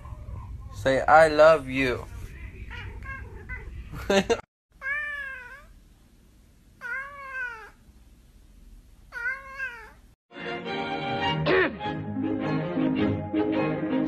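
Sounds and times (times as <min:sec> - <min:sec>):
cat meowing: 0:04.8 - 0:05.8, 0:06.8 - 0:07.8, 0:09.1 - 0:10.1
music: 0:10.3 - 0:14.0.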